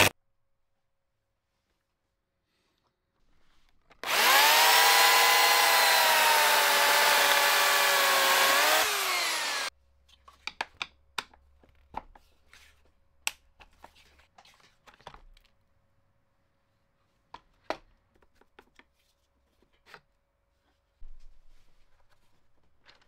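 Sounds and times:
electric chainsaw cutting log: 0:04.0 - 0:09.7.

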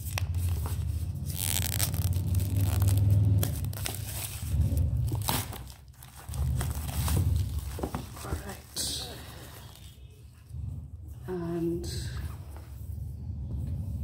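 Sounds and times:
plastic wrapping crinkling: 0:00.0 - 0:10.0.

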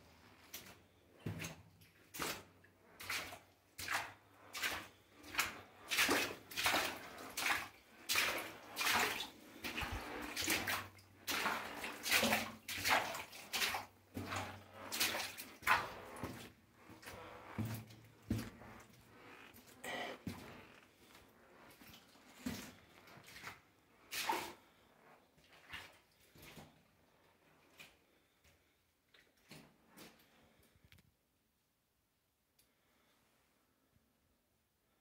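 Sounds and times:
footsteps on rocky floor: 0:15.6 - 0:21.8.

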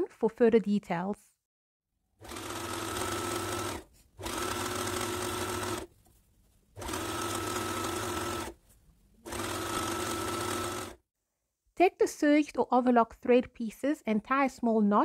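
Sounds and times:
overlock machine stitching: 0:02.2 - 0:05.9, 0:06.8 - 0:08.6, 0:09.2 - 0:11.0.

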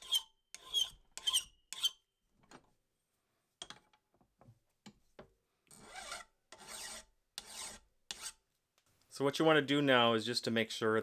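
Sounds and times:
file scraping steel tube: 0:00.0 - 0:02.0, 0:05.7 - 0:08.4.

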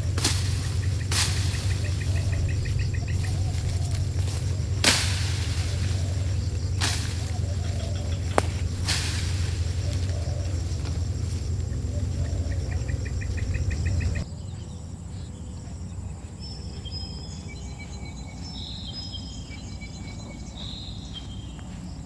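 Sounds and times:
loud low rumble: 0:00.0 - 0:15.0
birds chirping and whistling: 0:00.0 - 0:22.0
insects chirping: 0:00.0 - 0:22.0.

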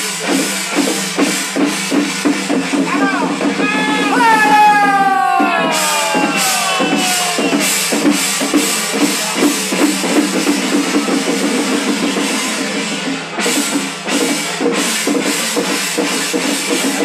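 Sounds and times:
drums beaten in fast rhythm: 0:00.0 - 0:17.0.

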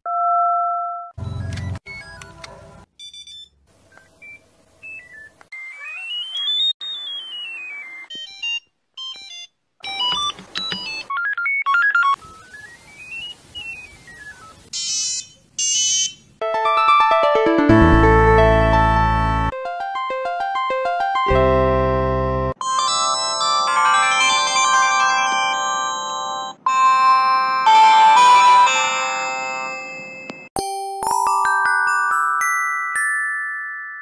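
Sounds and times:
phone beep melodies: 0:03.0 - 0:16.2
polyphonic phone jingle: 0:08.1 - 0:12.2, 0:16.4 - 0:34.0.

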